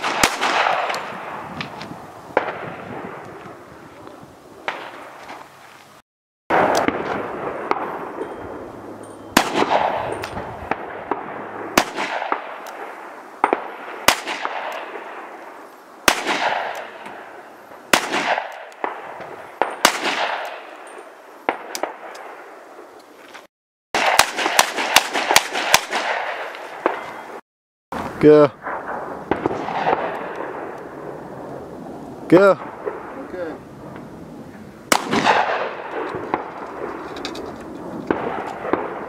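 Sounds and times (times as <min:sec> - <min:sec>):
handgun shots with echo: 0:09.4 - 0:11.2, 0:17.9 - 0:19.0, 0:19.6 - 0:20.7, 0:34.9 - 0:36.9.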